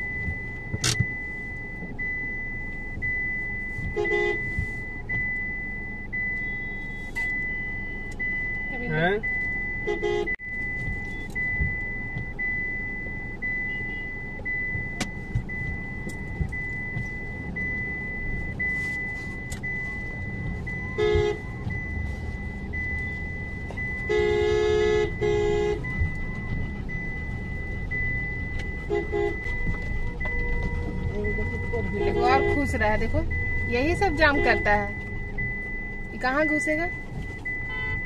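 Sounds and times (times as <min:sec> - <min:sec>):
low cabin and road rumble: 0:00.0 - 0:38.0
vehicle horns honking: 0:03.8 - 0:04.5, 0:09.8 - 0:10.4, 0:20.9 - 0:21.5, 0:24.0 - 0:25.9, 0:28.8 - 0:32.9, 0:34.0 - 0:34.9, 0:37.6 - 0:38.0.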